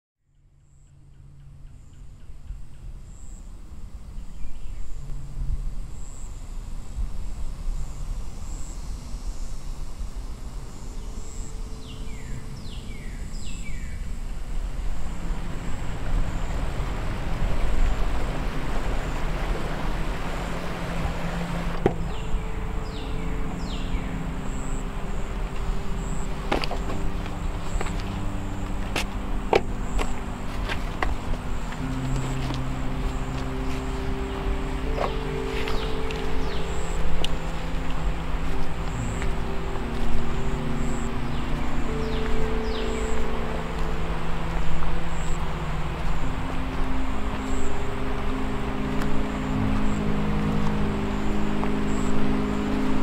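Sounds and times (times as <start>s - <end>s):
birds chirping: 10.6s - 53.0s.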